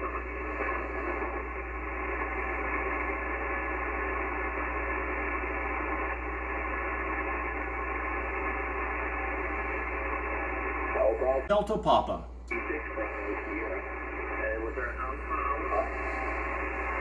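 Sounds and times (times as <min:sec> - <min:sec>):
radio band noise hiss: 0:00.0 - 0:17.0
low hum: 0:12.3 - 0:17.0.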